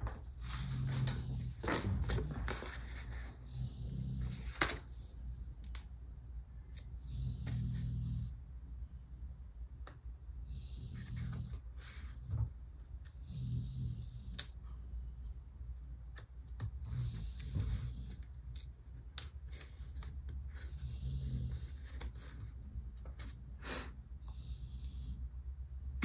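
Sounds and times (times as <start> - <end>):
soft paper rustling: 0.0 - 3.4.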